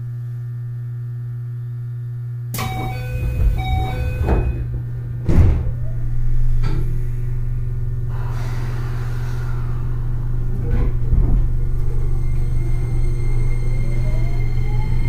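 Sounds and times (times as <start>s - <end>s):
low equipment hum: 0.0s - 15.0s
door chime tones: 2.6s - 4.9s
sliding doors shutting with thud: 2.6s - 6.8s, 10.6s - 12.0s.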